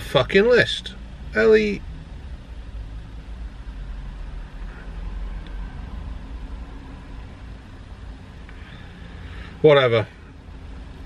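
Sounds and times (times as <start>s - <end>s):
vehicle rumble inside cabin: 0.0s - 11.0s.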